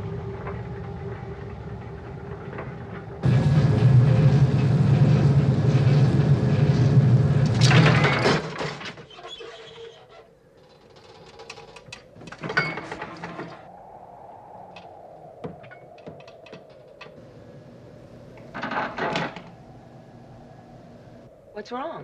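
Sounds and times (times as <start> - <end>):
machinery low hum and rumble: 0.0 - 8.2, 16.8 - 22.0
mechanical clicks and creaks: 7.4 - 13.6.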